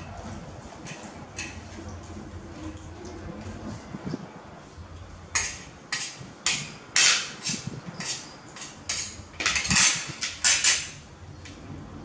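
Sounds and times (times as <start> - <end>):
metal spoon scraping ceramic plate: 7.4 - 10.9.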